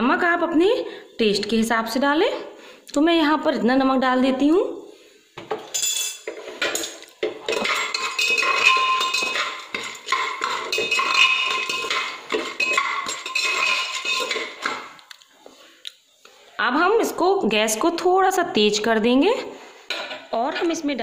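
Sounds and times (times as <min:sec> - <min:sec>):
metal spoon scraping a pot: 0:06.2 - 0:15.0
popcorn kernels rattling: 0:07.4 - 0:15.0.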